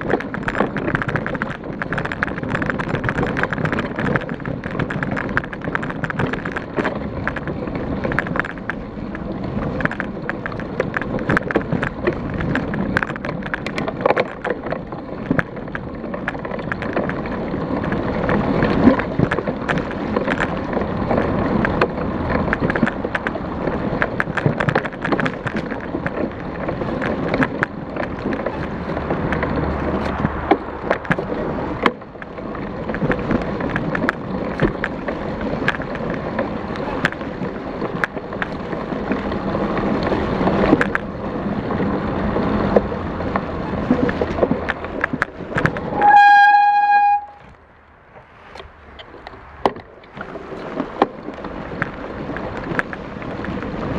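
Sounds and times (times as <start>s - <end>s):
bike rattling over dirt trail: 0.0s - 53.9s
steady high tone: 45.8s - 47.4s.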